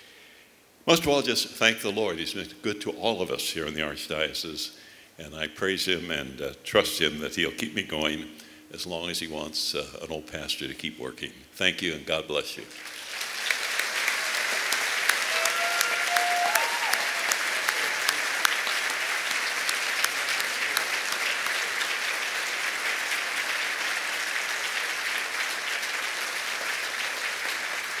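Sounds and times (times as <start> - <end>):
audience applauding: 12.7 - 28.0.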